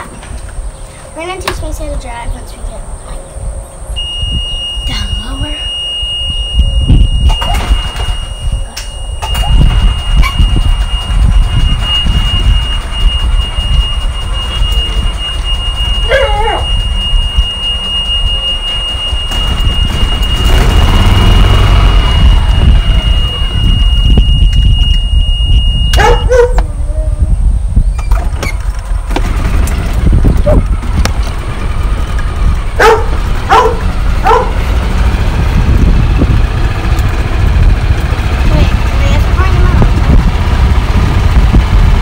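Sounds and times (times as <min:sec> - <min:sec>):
high-pitched whine: 0:00.0 - 0:32.8
wind buffeting microphone: 0:00.0 - 0:42.0
short wavering squeal: 0:03.8 - 0:26.3.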